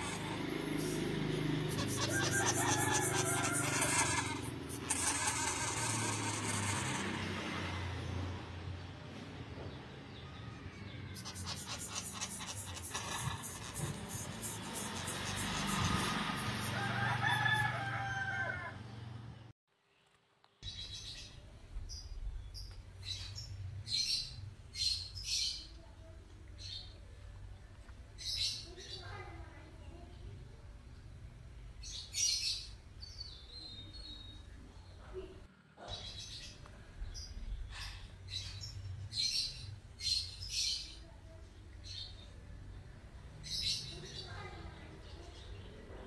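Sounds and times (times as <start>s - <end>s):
sugar gliders buzzing chatter: 0.0s - 7.4s, 10.8s - 18.6s.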